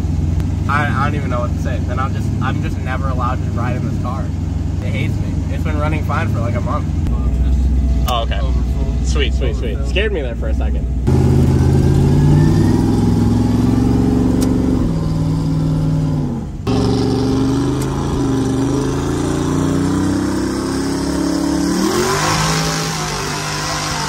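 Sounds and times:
race car engine accelerating: 11.0s - 24.0s.

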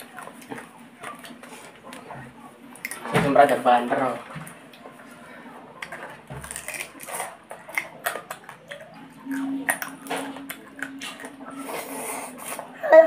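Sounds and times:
eating sounds: 0.0s - 3.6s, 4.2s - 12.9s
steady low hum: 0.0s - 13.0s
crab shell cracking: 5.8s - 11.4s.

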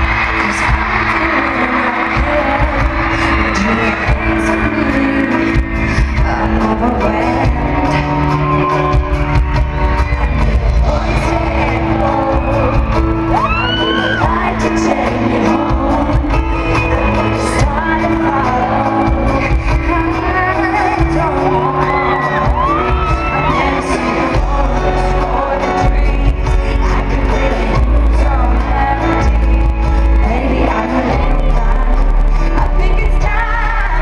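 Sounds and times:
crowd whooping: 0.0s - 26.2s
woman singing ballad: 0.0s - 34.0s.

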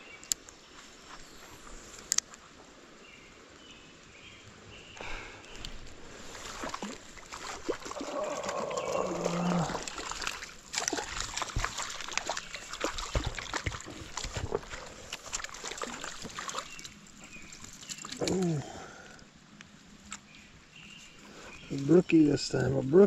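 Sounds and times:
fish splashing in water: 5.7s - 18.5s.

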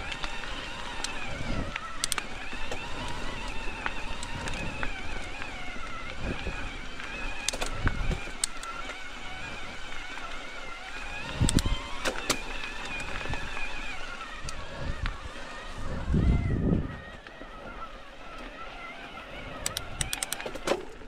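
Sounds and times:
bike tyres and drivetrain rumble: 0.0s - 21.0s
faint wavering whine: 0.0s - 21.0s.

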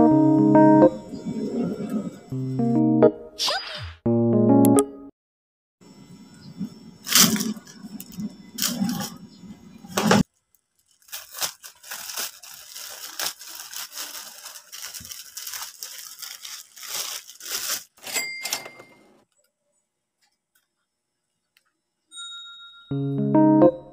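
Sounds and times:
plastic bags crinkling and tearing: 7.1s - 9.2s, 10.2s - 18.7s.

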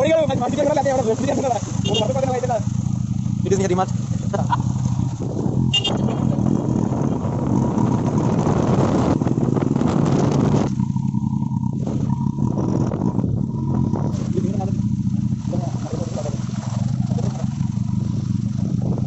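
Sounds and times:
road noise: 0.0s - 19.0s
vehicle engine running: 0.0s - 19.0s
wind noise: 5.0s - 15.1s, 17.9s - 19.0s.

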